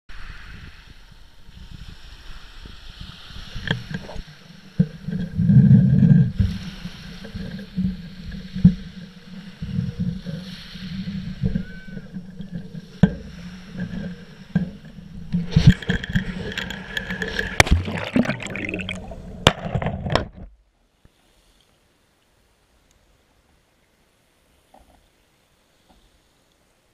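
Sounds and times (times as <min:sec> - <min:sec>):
wind on microphone: 0:00.1 - 0:20.5.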